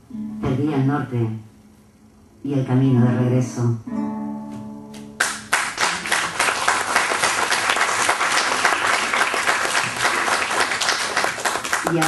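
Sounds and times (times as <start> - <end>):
guitar chord ringing: 0.1 - 0.6, 3.9 - 5.2
audience applause: 5.2 - 12.0.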